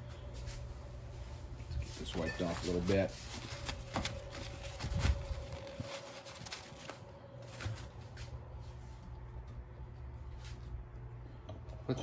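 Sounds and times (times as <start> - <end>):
faint steady hum: 0.0 - 12.0
paper towel rubbing: 1.9 - 7.1.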